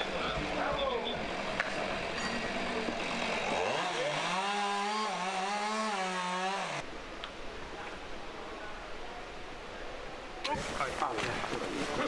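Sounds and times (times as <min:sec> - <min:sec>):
outdoor background noise: 0:00.0 - 0:12.0
small engine revving: 0:02.9 - 0:06.8.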